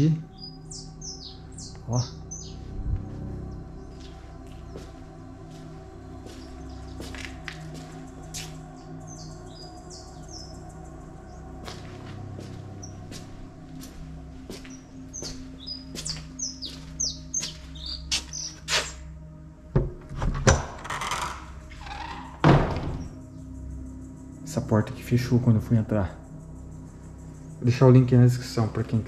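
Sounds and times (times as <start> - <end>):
small birds chirping: 0.0 - 19.4, 21.5 - 29.0
footsteps: 2.6 - 8.7, 11.6 - 19.0
wooden door thunks: 19.8 - 21.2, 22.3 - 23.2.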